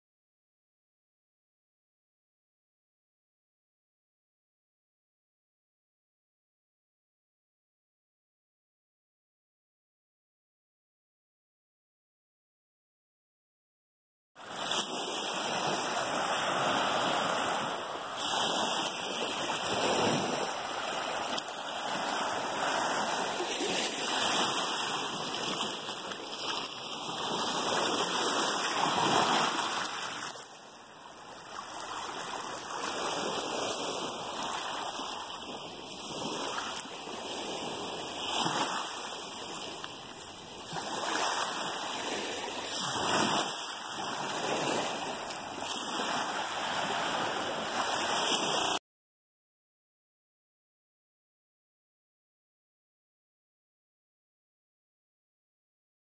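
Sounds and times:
lake waves washing on pebbles: 0:14.4 - 0:48.8.

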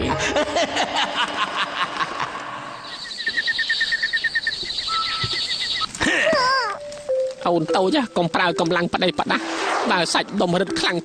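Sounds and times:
high chirping: 0:02.7 - 0:08.6.

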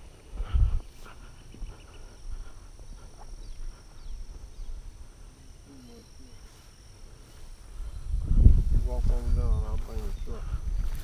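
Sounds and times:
wind rumble on microphone: 0:00.0 - 0:04.8, 0:07.6 - 0:11.0
footsteps through grass: 0:00.0 - 0:05.0, 0:06.0 - 0:11.0
faint bird chirps: 0:01.2 - 0:06.8.

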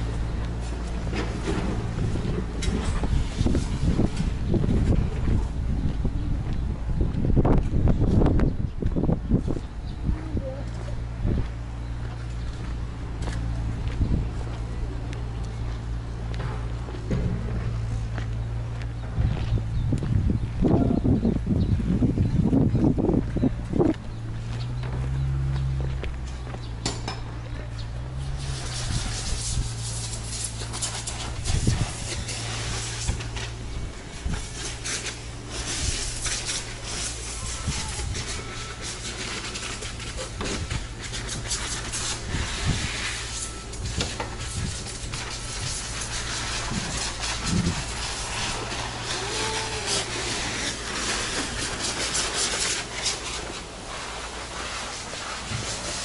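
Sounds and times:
steady low hum: 0:00.0 - 0:56.0
scuffs and scrapes: 0:10.6 - 0:56.0
steady hiss: 0:28.3 - 0:56.0.

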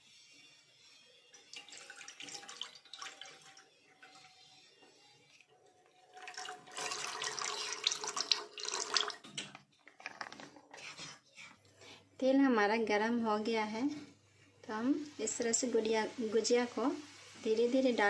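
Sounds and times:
oil pouring into a frying pan: 0:01.4 - 0:04.2, 0:06.1 - 0:09.2.

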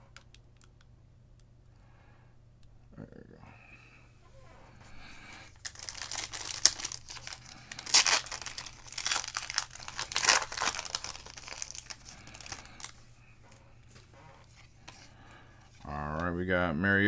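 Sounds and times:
foil wrapper crinkling: 0:05.2 - 0:13.0
foil wrapper ripping: 0:05.5 - 0:13.0.

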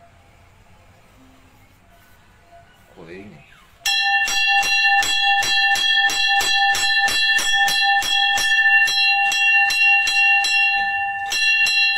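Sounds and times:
temple bell rung rapidly: 0:03.8 - 0:11.9.

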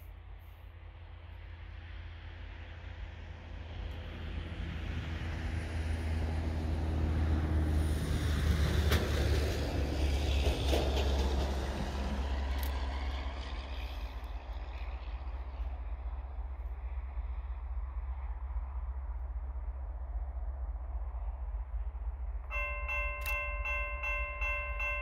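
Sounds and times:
distant locomotive engine drone: 0:00.0 - 0:25.0.

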